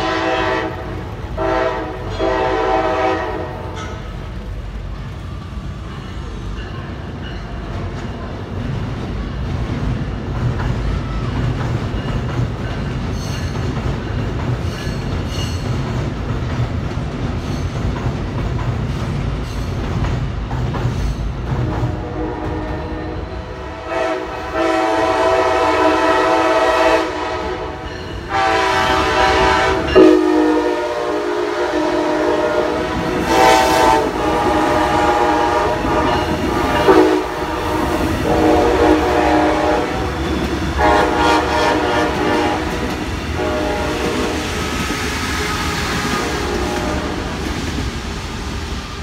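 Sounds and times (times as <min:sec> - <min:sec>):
train horn blasts: 0:00.0 - 0:04.1, 0:21.6 - 0:47.4
train rolling rumble: 0:00.0 - 0:49.0.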